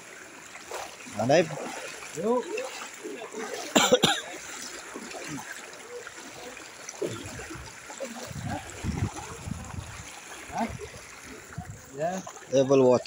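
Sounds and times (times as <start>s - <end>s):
floodwater rushing: 0.0s - 13.0s.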